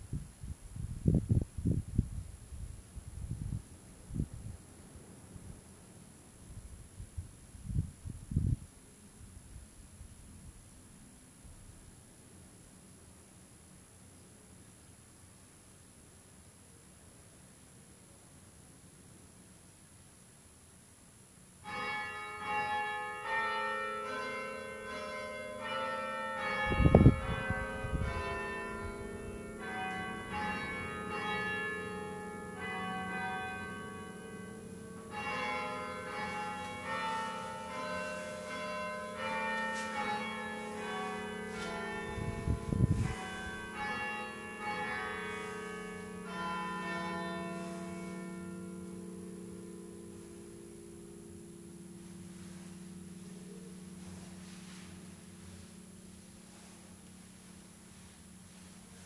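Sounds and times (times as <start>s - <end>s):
bells ringing: 21.7s - 56.0s.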